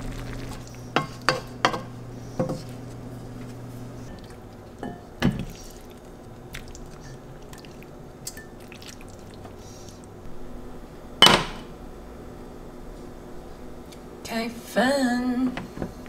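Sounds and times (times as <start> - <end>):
small wet sounds: 0.0 - 1.0, 2.6 - 10.2.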